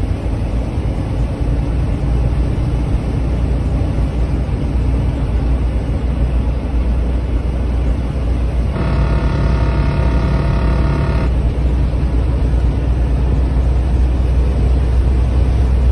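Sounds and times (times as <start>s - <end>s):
vehicle road and engine rumble: 0.0s - 15.9s
buzzing tone: 8.7s - 11.5s.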